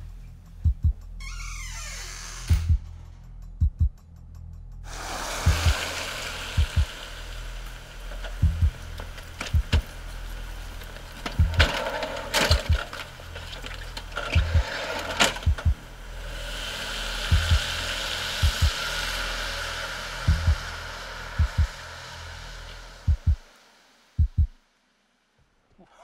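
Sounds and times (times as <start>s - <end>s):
tense background music: 0.0s - 24.6s
deep heartbeat-like thumps: 0.5s - 1.2s, 2.5s - 4.2s, 5.4s - 5.8s, 6.6s - 6.9s, 8.4s - 8.9s, 9.5s - 9.9s, 11.3s - 11.8s, 12.5s - 13.0s, 14.3s - 14.8s, 15.4s - 15.9s, 17.3s - 17.7s, 18.4s - 18.8s, 20.3s - 20.8s, 21.4s - 21.8s, 23.0s - 23.5s, 24.2s - 24.6s
hissing rush: 4.9s - 24.2s.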